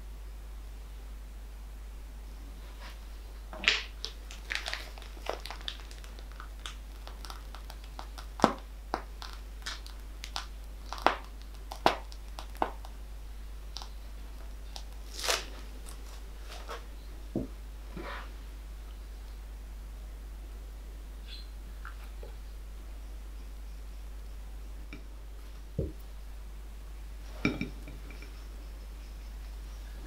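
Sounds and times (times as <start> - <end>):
plastic piping bag crinkling: 3.6 - 13.0, 13.6 - 16.9.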